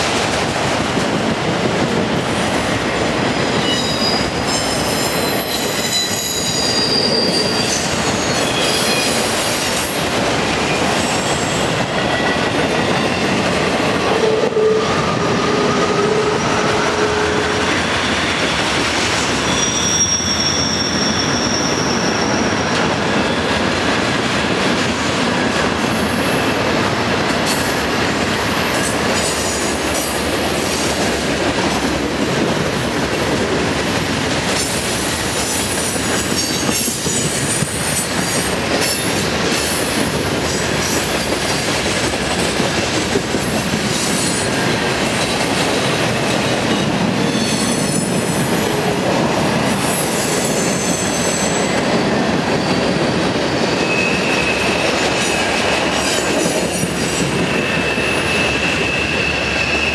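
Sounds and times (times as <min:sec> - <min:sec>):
train wheels rumbling on rail: 0:00.0 - 0:59.9
high-pitched wheel squeals: 0:03.6 - 0:09.7, 0:14.2 - 0:22.7, 0:52.5 - 0:56.2, 0:56.9 - 0:59.9.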